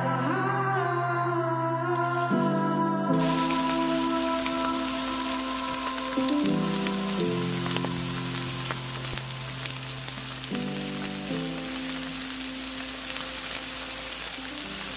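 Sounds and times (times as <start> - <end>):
background music of held chords: 0.0 - 14.9
steak sizzling on a grill: 2.0 - 14.9.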